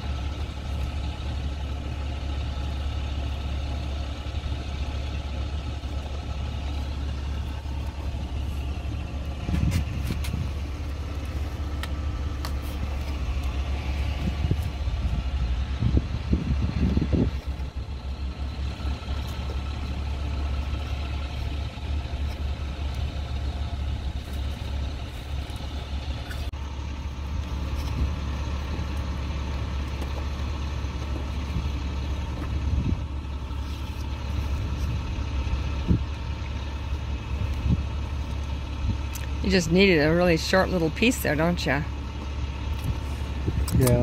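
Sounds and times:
truck engine idling: 0.0 - 44.0.

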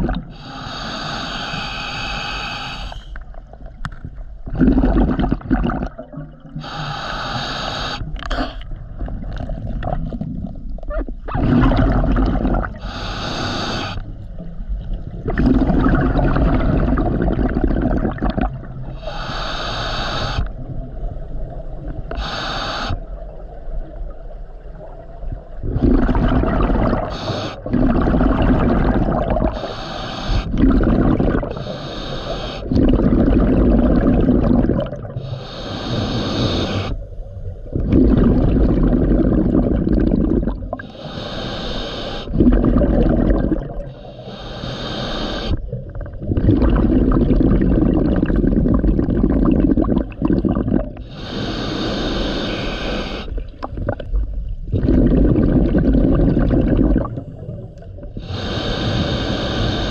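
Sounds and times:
bubbling exhalations: 0.0 - 2.0, 4.4 - 14.0, 15.2 - 20.4, 25.6 - 37.0, 37.7 - 59.9
hissing regulator inhalations: 0.3 - 3.3, 6.6 - 8.7, 12.4 - 14.2, 18.8 - 20.6, 22.1 - 23.1, 25.8 - 33.0, 34.3 - 37.1, 39.5 - 45.8, 50.3 - 53.5, 58.0 - 59.9.

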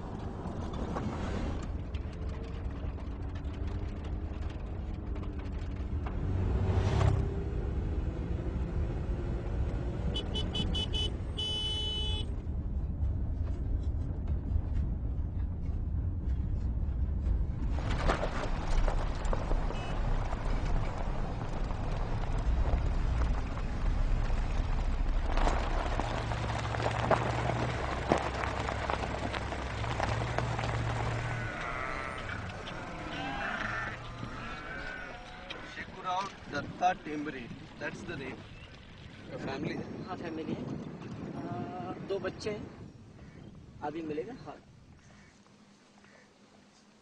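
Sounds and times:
car road and engine rumble: 0.0 - 41.5
vehicle horn tooting: 10.1 - 12.3, 19.7 - 20.0
tyres crackling over leaves and gravel: 17.6 - 39.4.

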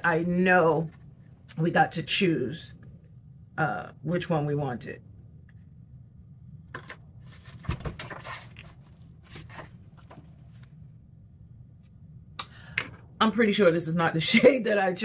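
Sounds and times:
packaging rustling and crinkling: 6.8 - 10.7.

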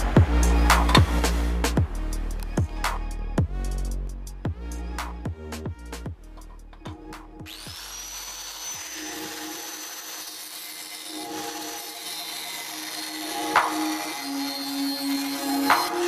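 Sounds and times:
angle grinder whining: 6.2 - 16.0
grinder cutting steel tube: 6.2 - 16.0.

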